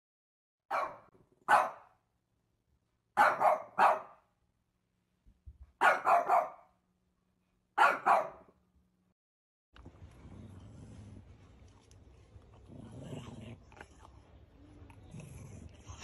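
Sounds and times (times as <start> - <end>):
small dog barking: 0.7 - 2.0, 3.2 - 4.2, 5.8 - 6.7, 7.8 - 8.5.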